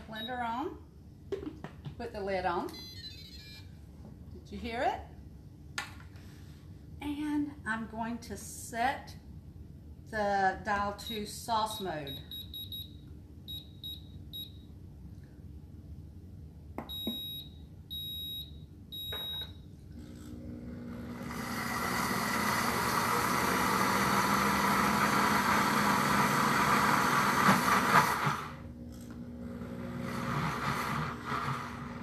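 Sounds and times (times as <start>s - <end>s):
longer beeps: 11.1s - 14.6s, 16.9s - 19.5s
blender motor blending: 20.1s - 32.0s.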